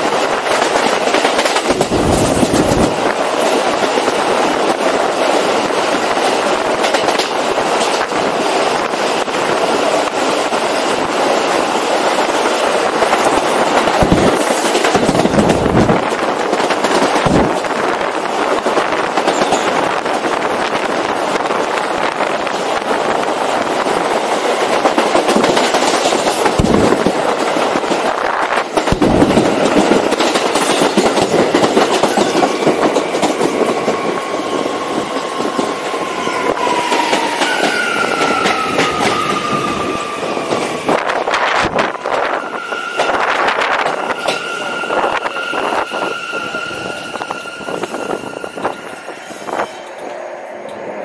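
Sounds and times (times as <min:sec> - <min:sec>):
train knocks: 0:00.0 - 0:08.5, 0:13.0 - 0:17.9, 0:24.7 - 0:50.8
subway train rumbling: 0:00.0 - 0:51.0.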